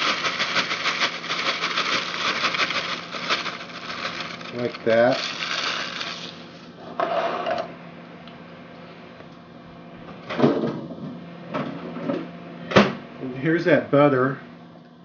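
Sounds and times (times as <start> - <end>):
plastic sleeve crinkling: 0.0 - 6.7
steady low hum: 0.0 - 15.0.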